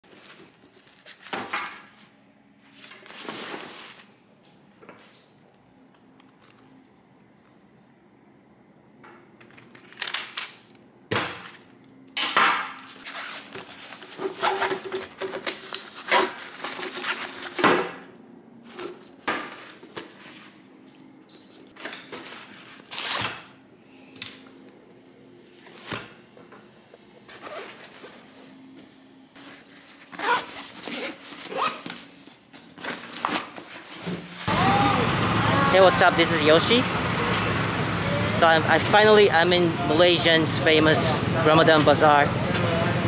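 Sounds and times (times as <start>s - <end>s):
backpack zipper: 27.3s - 27.9s, 30.1s - 31.8s.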